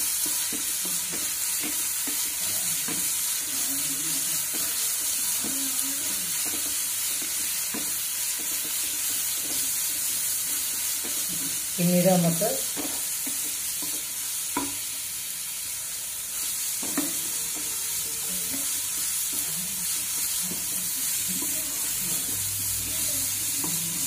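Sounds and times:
onions sizzling in a pan: 0:00.0 - 0:24.0
wooden spatula scraping a pan: 0:16.4 - 0:24.0.

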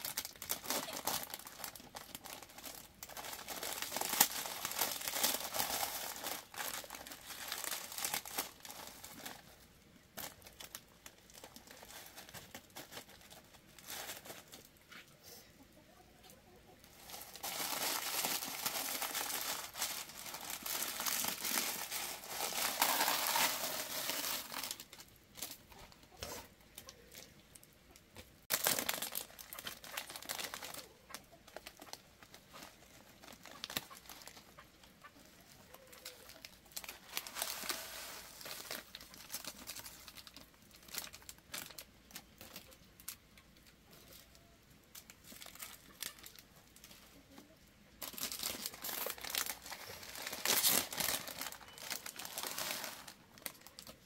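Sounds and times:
husks tearing and crinkling: 0:00.0 - 0:14.9, 0:16.8 - 0:27.4, 0:28.5 - 0:47.1, 0:48.0 - 0:54.0.

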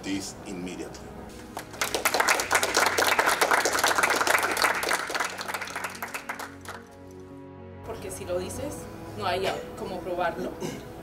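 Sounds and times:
audience applauding: 0:01.5 - 0:07.2.

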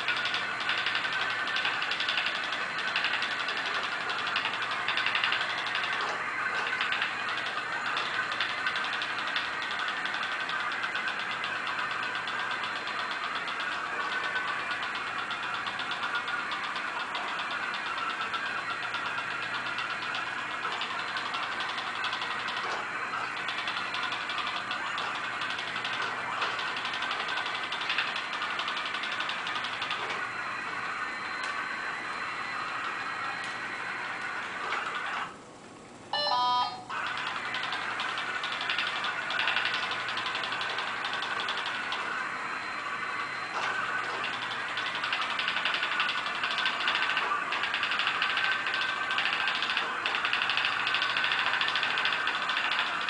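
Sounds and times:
robot drive motors ticking: 0:00.0 - 0:30.3, 0:36.9 - 0:53.0
click: 0:31.4 - 0:31.6.

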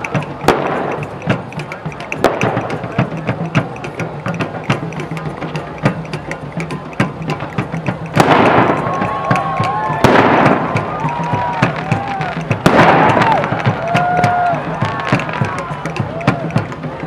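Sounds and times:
fireworks crackling: 0:00.0 - 0:05.1, 0:08.0 - 0:16.9
sharp pops: 0:00.0 - 0:14.3
fireworks booming: 0:00.5 - 0:01.2, 0:08.2 - 0:09.2, 0:10.0 - 0:14.4.

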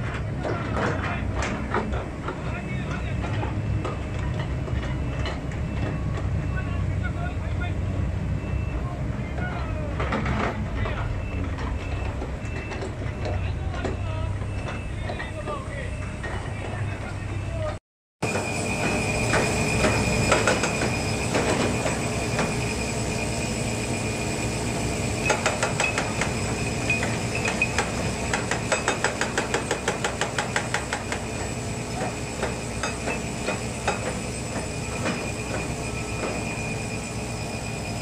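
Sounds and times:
excavator engine and hydraulics: 0:00.0 - 0:38.0
high whine: 0:18.2 - 0:29.8, 0:31.0 - 0:38.0.

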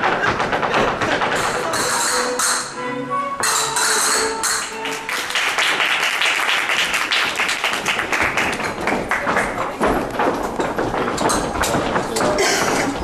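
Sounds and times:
flamenco music: 0:00.0 - 0:13.0
audience applauding: 0:04.6 - 0:09.8.

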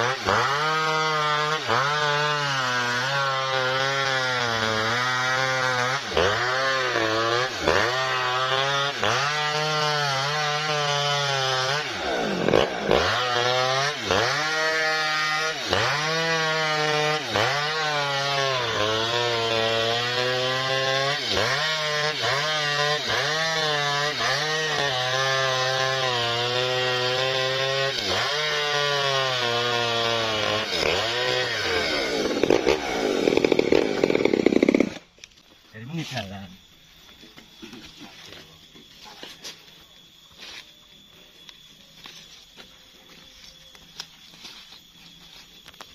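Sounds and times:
chainsaw cutting wood: 0:00.0 - 0:35.6.

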